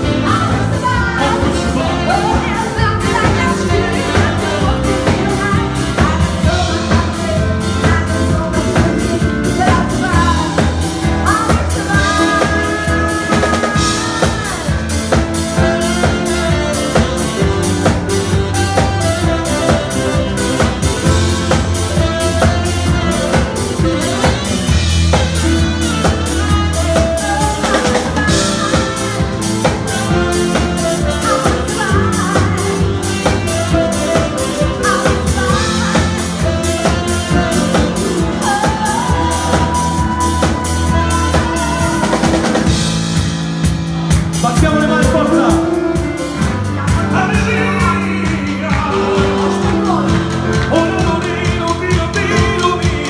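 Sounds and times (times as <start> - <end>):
drum kit beat: 0.0 - 53.0
live band playing: 0.0 - 53.0.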